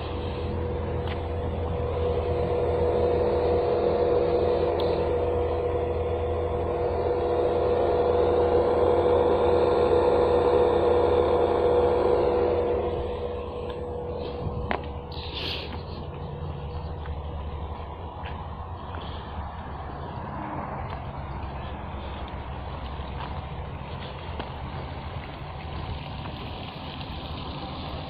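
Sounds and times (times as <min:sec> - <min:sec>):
electrical hum with whine: 0:00.0 - 0:28.0.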